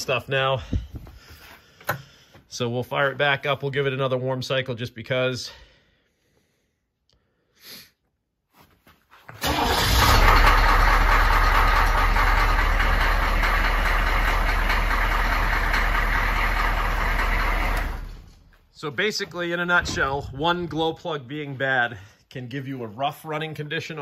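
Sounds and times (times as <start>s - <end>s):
diesel engine starting and idling: 9.4s - 18.6s.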